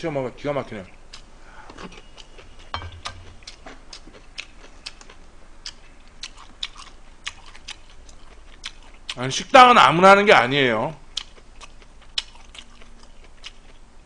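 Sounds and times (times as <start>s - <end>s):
person chewing crunchy food: 1.1s - 9.2s, 11.1s - 13.8s.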